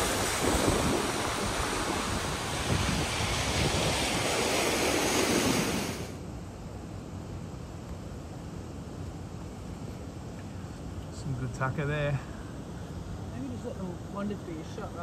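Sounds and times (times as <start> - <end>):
wind buffeting microphone: 0.0 - 6.1
waterfall rushing: 0.0 - 6.2
quiet hiss: 0.0 - 15.0.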